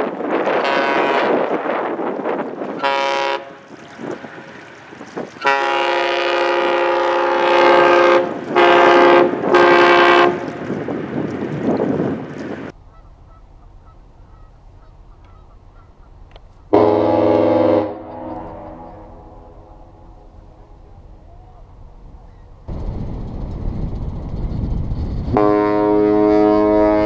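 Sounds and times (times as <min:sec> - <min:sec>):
wind buffeting microphone: 0:00.0 - 0:16.8, 0:18.2 - 0:27.0
ship horn blasts: 0:00.3 - 0:01.9, 0:02.6 - 0:10.7, 0:16.7 - 0:20.9, 0:25.3 - 0:27.0.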